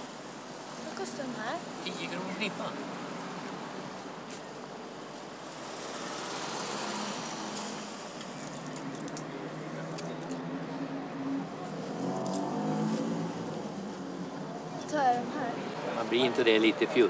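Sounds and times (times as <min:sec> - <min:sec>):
steady background noise: 0:00.0 - 0:17.0
coins clinking: 0:08.3 - 0:09.3.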